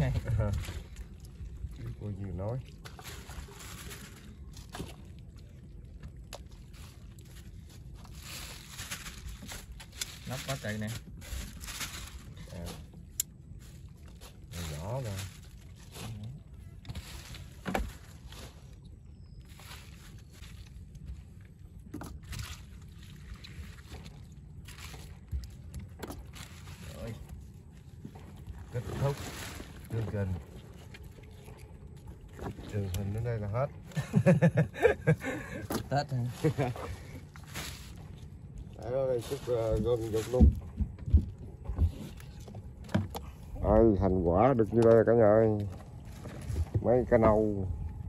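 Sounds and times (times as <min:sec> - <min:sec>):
wind and water rumble: 0:00.0 - 0:48.0
rustling and light knocks: 0:16.8 - 0:18.7, 0:39.2 - 0:43.4, 0:45.6 - 0:47.4
wind rumble on microphone: 0:38.1 - 0:45.2, 0:45.8 - 0:48.0.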